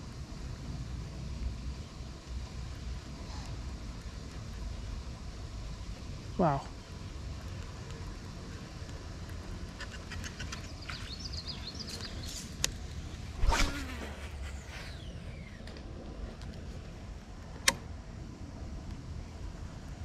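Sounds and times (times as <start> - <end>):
fishing rod swish: 13.3 - 15.1.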